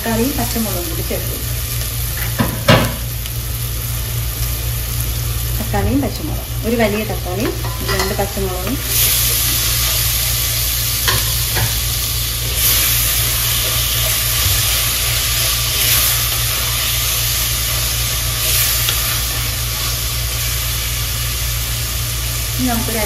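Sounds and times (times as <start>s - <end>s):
vegetables sizzling in hot oil: 0.0s - 23.0s.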